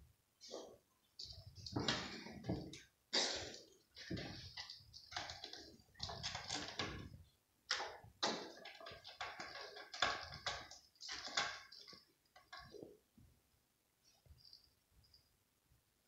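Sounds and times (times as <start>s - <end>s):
cat claws scratching: 4.0s - 7.1s, 8.4s - 12.8s.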